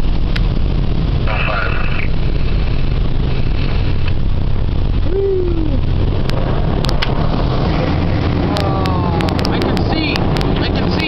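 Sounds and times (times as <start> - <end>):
low machinery rumble: 0.0 - 11.0
falling tone: 5.0 - 5.9.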